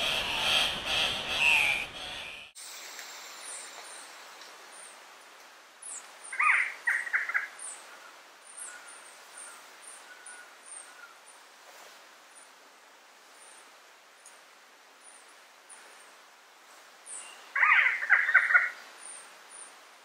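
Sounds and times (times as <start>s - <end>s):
sharp bird calls: 0.0s - 2.6s
soft forest hiss: 0.0s - 20.0s.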